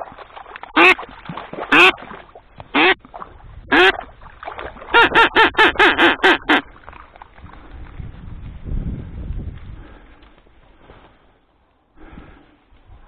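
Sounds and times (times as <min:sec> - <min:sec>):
duck quacking: 0:00.8 - 0:01.0, 0:01.7 - 0:02.0, 0:02.7 - 0:03.0, 0:03.7 - 0:04.0, 0:04.9 - 0:06.7.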